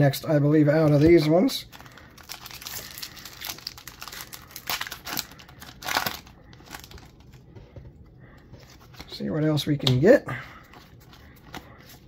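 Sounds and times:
foil wrapper tearing and crinkling: 0.9 - 7.2.

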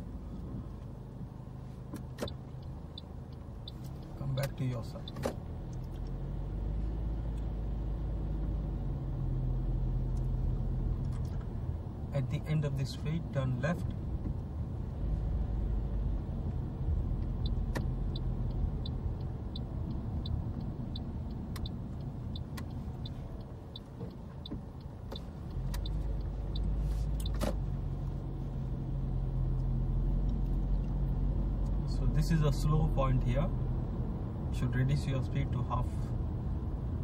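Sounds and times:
car cabin road rumble: 0.0 - 37.0
turn signal ticking: 0.0 - 37.0.

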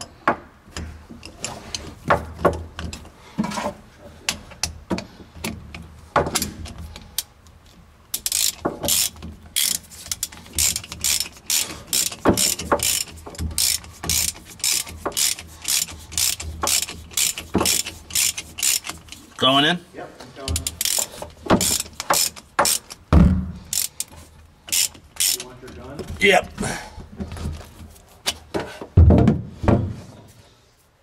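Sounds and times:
ratchet wrench clicking: 8.1 - 19.4, 20.6 - 23.0, 23.7 - 25.6.

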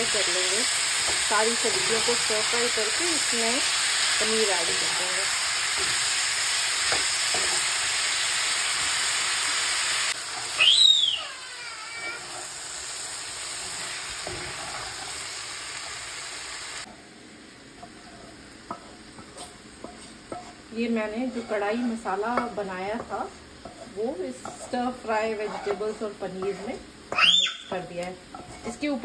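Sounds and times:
vegetables sizzling in a pan: 0.0 - 29.0
spatula stirring: 17.8 - 27.2, 27.8 - 29.0.

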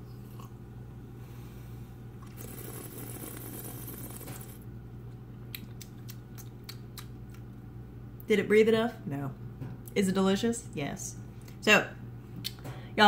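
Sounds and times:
low hum: 0.0 - 5.4
lip smacks: 5.4 - 7.6.

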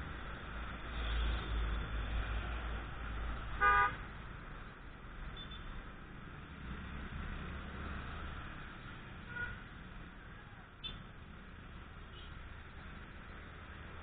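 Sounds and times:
road noise: 0.0 - 14.0
vehicle horn toot: 3.6 - 4.0.

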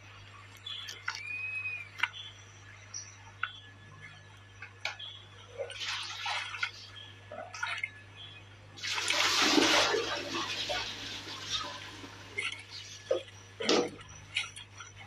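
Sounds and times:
water splashing in stream: 8.8 - 11.7.

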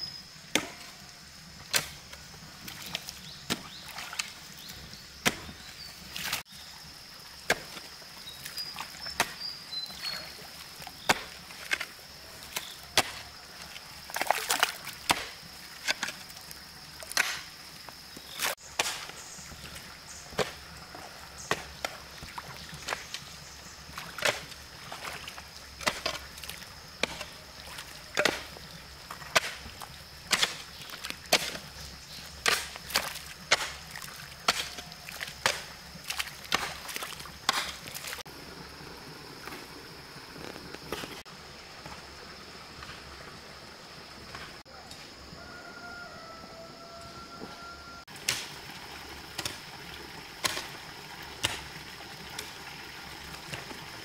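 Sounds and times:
hoe chopping into wet soil: 0.5 - 1.0, 1.6 - 6.4, 7.4 - 13.3, 14.1 - 16.2, 17.0 - 17.6, 18.2 - 38.2, 48.2 - 48.6, 49.3 - 49.7, 50.4 - 52.5
water sloshing around boots: 2.6 - 6.5, 7.6 - 17.4, 18.2 - 38.3.

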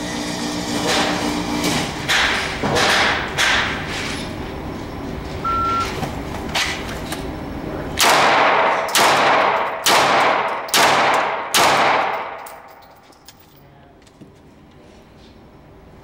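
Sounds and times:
shot timer beep: 5.4 - 5.9
pistol shots echoing indoors: 8.0 - 12.9.

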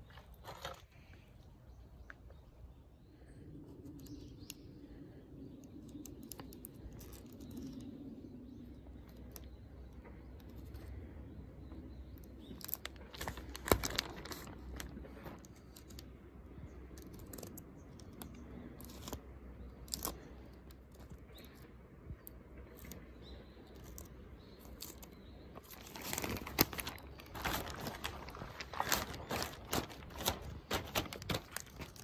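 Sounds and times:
plastic sheeting crinkling and tearing: 12.6 - 15.8, 24.7 - 32.0
plastic sheeting rustling: 13.0 - 15.4, 25.6 - 32.0.

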